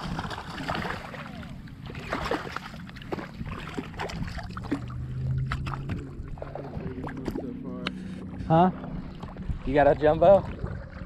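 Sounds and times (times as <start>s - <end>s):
fish splashing in water: 0.0s - 7.5s.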